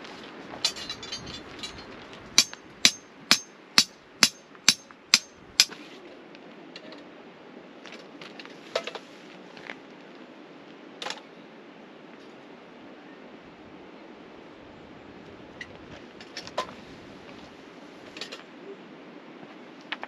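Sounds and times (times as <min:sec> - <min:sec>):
crackling rustle: 0:00.0 - 0:02.8, 0:07.8 - 0:10.8, 0:15.2 - 0:18.6.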